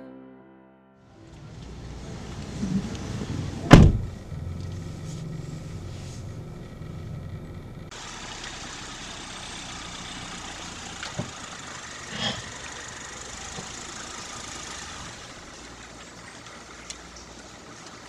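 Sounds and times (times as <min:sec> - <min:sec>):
car engine idling: 0:01.2 - 0:18.0
brief thump: 0:03.7 - 0:04.1.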